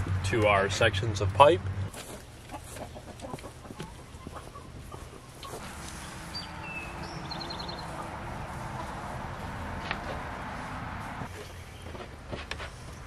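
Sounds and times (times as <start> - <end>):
hens clucking softly: 2.0 - 6.0, 6.9 - 9.3.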